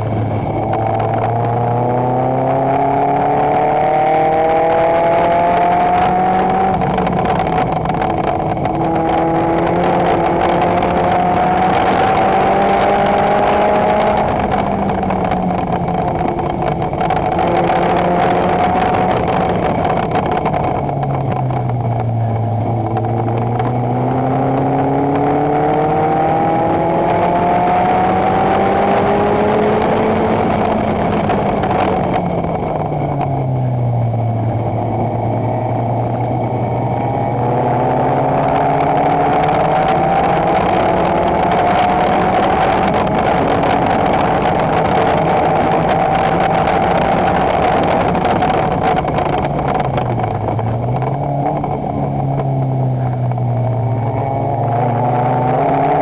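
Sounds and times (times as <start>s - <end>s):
race car engine revving: 0.0s - 56.0s
wind rush: 0.0s - 56.0s.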